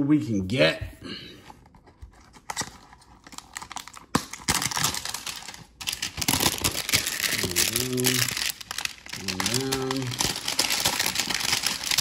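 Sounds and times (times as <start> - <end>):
packaging crinkling and tearing: 1.8 - 12.0
packaging clicks: 2.3 - 12.0.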